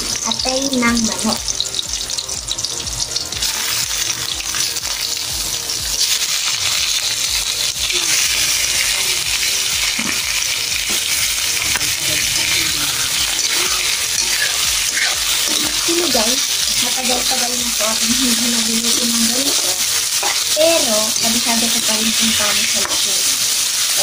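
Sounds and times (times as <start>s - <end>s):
garlic and onion sizzling in oil: 0.0s - 24.0s.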